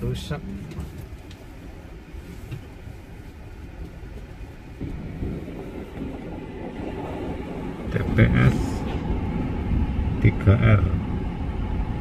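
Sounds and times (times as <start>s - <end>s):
car rumble from inside cabin: 0.0s - 12.0s.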